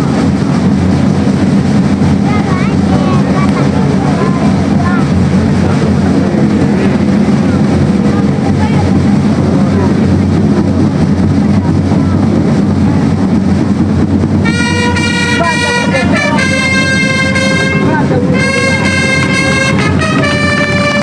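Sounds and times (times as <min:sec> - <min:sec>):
steady low rumble: 0:00.0 - 0:21.0
trumpets playing long notes: 0:14.4 - 0:21.0.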